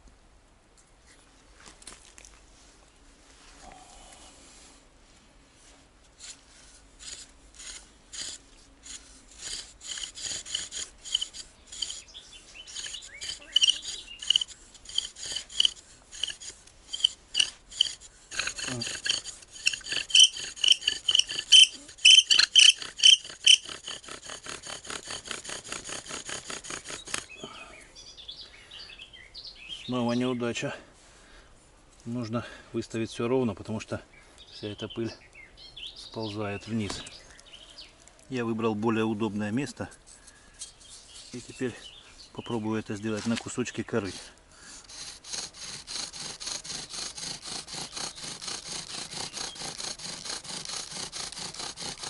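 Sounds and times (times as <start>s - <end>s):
wooden spindle rasping: 6.1s - 27.4s, 39.3s - 41.8s, 42.9s - 52.0s.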